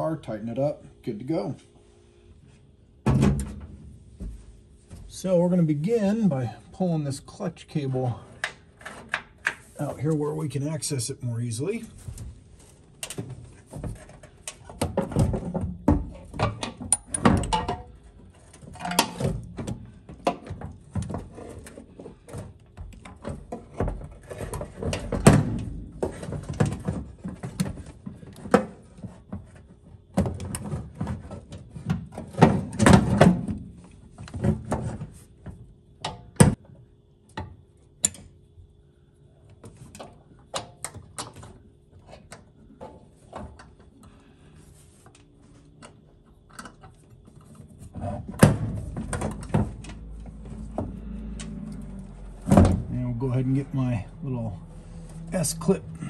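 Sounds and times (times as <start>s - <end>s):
metal clanks and scraping: 13.0s - 19.5s.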